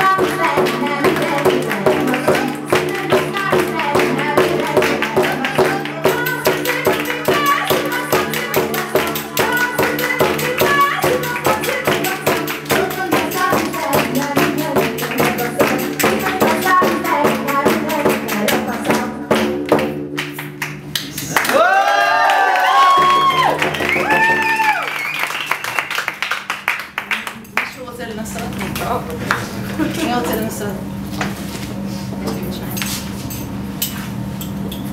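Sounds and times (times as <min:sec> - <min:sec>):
woman singing folk song: 0:00.0 - 0:19.8
tambourine shaking: 0:00.1 - 0:18.9
audience hand claps: 0:00.2 - 0:12.9, 0:19.6 - 0:27.8.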